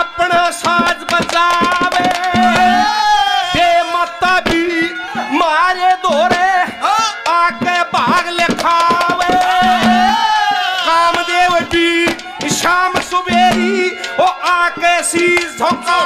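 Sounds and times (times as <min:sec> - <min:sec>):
man singing into a microphone: 0:00.0 - 0:16.0
quick dholak drum strokes: 0:00.4 - 0:03.3, 0:06.1 - 0:14.2.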